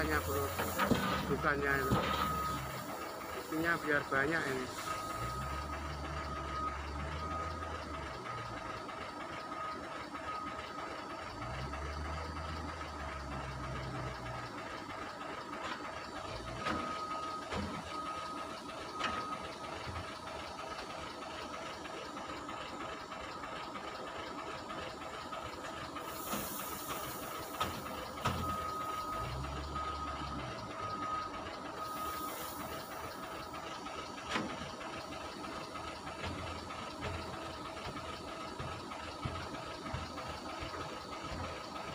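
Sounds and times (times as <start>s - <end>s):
beeping tone: 0.0s - 8.2s, 26.5s - 32.9s
diesel engine running: 0.0s - 41.9s.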